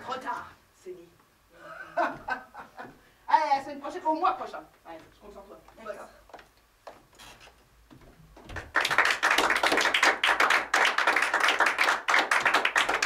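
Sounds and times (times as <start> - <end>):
audience applauding: 8.5 - 13.0.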